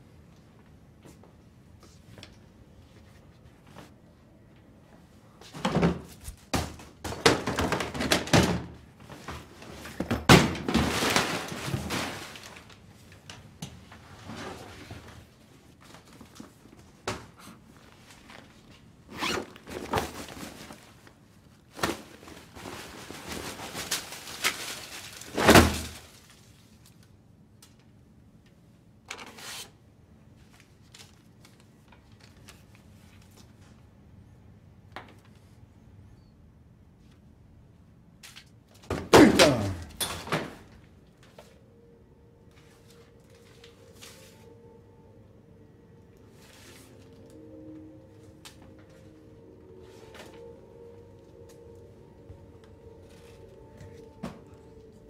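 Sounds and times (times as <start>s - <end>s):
boxes shuffling: 5.4s - 26.3s, 42.5s - 44.6s, 46.3s - 55.0s
objects rummaged on metal shelf: 5.5s - 16.6s.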